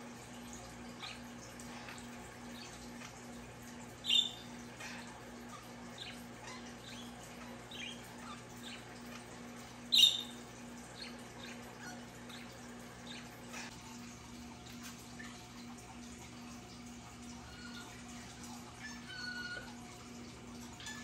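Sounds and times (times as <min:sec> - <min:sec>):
budgerigars chirping: 0:04.1 - 0:04.4, 0:09.9 - 0:10.4.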